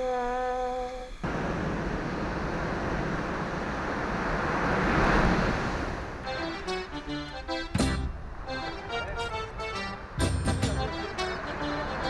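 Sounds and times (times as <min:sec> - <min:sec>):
wind on microphone: 0:01.2 - 0:06.5
surf rushing: 0:01.2 - 0:12.0
music: 0:06.2 - 0:12.0.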